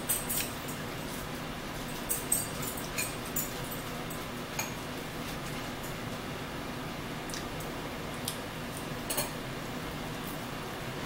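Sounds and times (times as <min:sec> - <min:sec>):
chewing and cutlery clicks: 0:00.0 - 0:00.8, 0:01.8 - 0:04.8
electric fan humming: 0:00.0 - 0:11.0.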